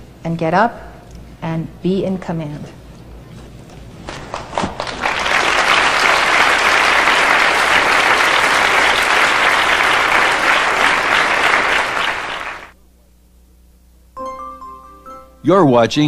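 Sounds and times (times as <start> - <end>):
audience applauding: 4.1 - 12.8.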